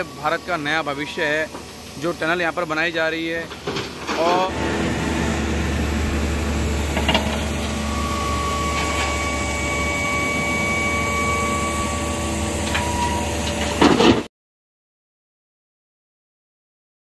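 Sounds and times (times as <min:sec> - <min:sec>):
excavator engine hum: 0:00.0 - 0:14.3
steady high whine: 0:00.0 - 0:14.3.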